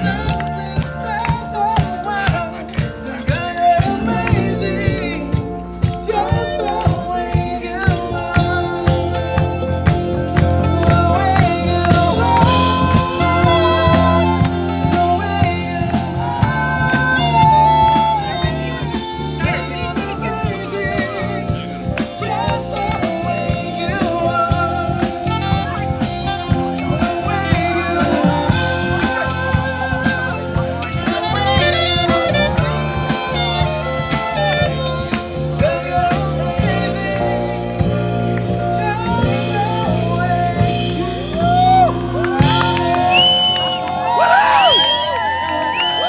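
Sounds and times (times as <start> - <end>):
band playing a song: 0.0 - 46.0
crowd whooping and cheering: 11.1 - 22.7, 40.9 - 46.0.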